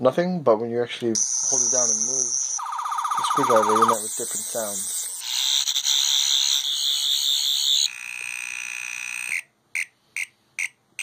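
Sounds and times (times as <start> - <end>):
warbling electronic whine: 1.2 - 8.2.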